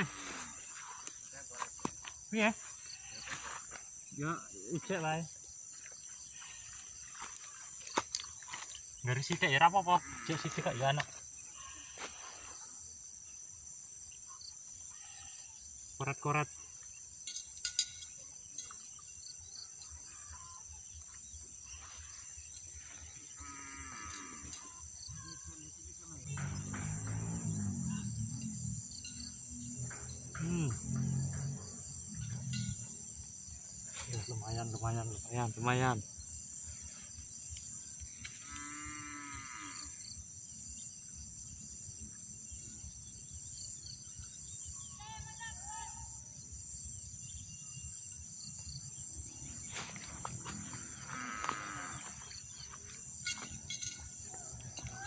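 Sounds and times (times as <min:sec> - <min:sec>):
insects chirring: 0:00.0 - 0:55.0
cow mooing: 0:10.0 - 0:10.6, 0:23.4 - 0:24.7, 0:38.4 - 0:40.0, 0:50.6 - 0:52.2.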